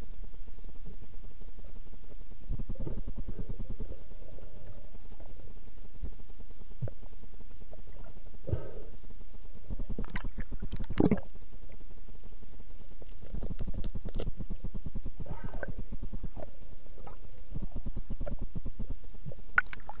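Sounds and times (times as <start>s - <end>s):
low underwater rumble: 0.0s - 20.0s
crackling knocks: 9.7s - 11.2s, 13.2s - 19.0s
bubbly gurgles: 9.7s - 11.4s, 13.2s - 20.0s.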